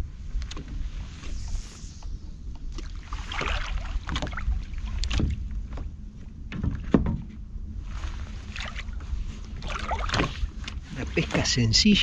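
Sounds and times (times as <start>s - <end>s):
water lapping at boat: 2.7s - 11.7s.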